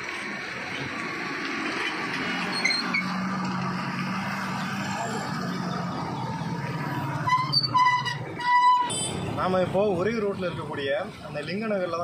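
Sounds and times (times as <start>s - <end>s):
vehicle engine humming: 0.0s - 12.0s
vehicle horn: 7.3s - 9.2s.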